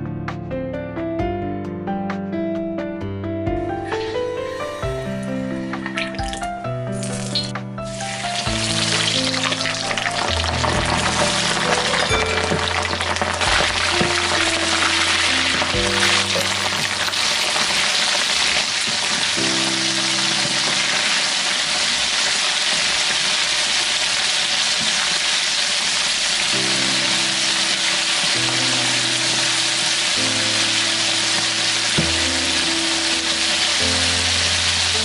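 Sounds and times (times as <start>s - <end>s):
background music chords: 0.0s - 18.3s
chicken wings deep-frying: 3.8s - 35.0s.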